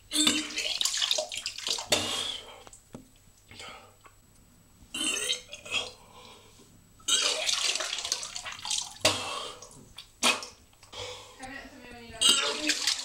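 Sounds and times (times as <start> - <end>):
man retching and gagging: 0.0 - 1.0, 1.7 - 2.6, 4.9 - 6.0, 7.0 - 10.9, 12.2 - 13.0.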